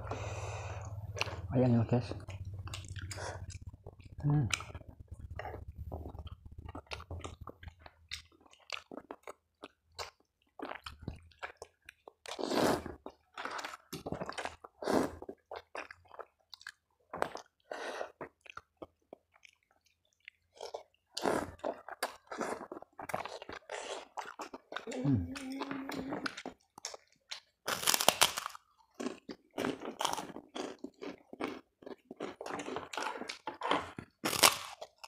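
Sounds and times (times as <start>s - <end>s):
chewing noodles: 2.1s - 35.0s
slurping noodles: 12.3s - 13.8s, 14.8s - 15.3s.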